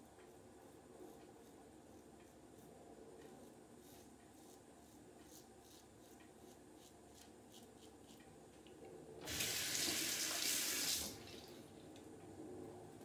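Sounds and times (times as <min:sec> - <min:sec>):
razor scraping stubble: 0:03.4 - 0:08.3
tap water running: 0:09.2 - 0:11.5.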